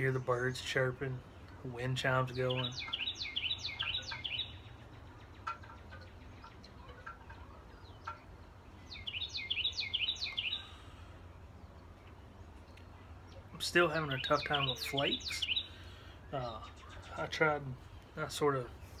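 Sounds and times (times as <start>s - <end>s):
songbird chirping: 0.0s - 19.0s.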